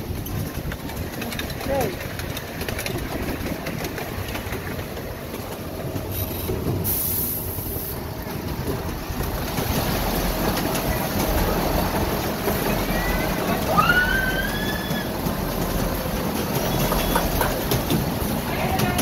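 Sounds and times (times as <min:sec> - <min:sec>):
miniature train rumbling on track: 0:00.0 - 0:19.0
brief high hiss: 0:06.8 - 0:08.0.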